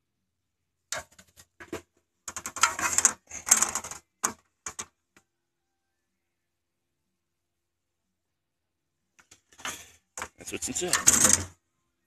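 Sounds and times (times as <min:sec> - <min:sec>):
clattering clicks and rustles: 0:00.9 - 0:05.0, 0:09.2 - 0:11.6.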